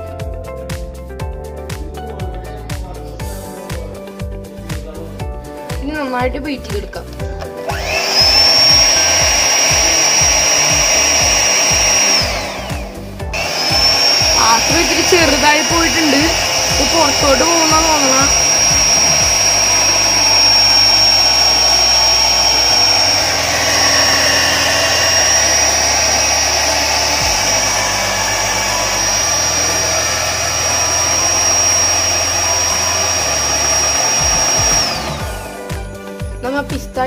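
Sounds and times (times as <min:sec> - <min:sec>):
electric hand mixer whining: 0:07.2 - 0:36.7
beaters whipping cream: 0:07.4 - 0:36.2.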